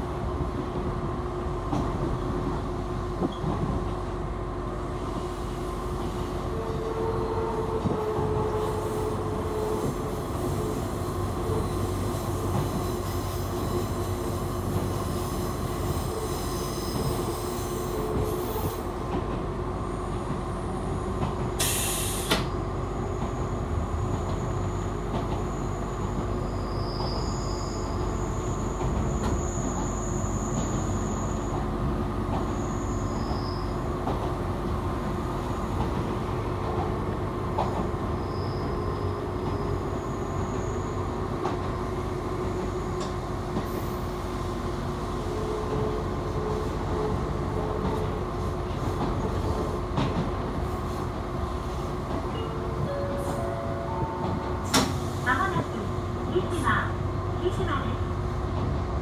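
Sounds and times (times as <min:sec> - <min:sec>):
train wheels rumbling on rail: 0:00.0 - 0:59.0
brief hiss: 0:21.6 - 0:22.5.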